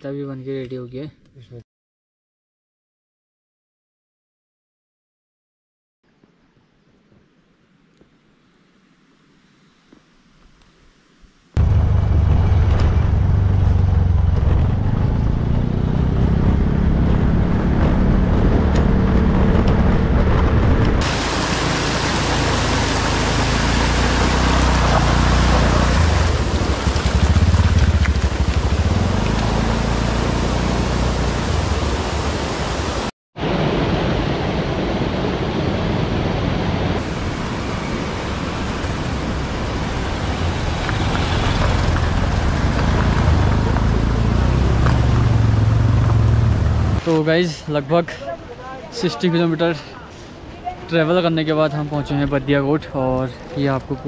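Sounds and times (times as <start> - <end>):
motorbike engines: 11.6 - 32.8, 37.0 - 47.4
road noise on gravel: 11.6 - 33.8, 36.2 - 54.0
heavy wind noise: 16.3 - 21.7.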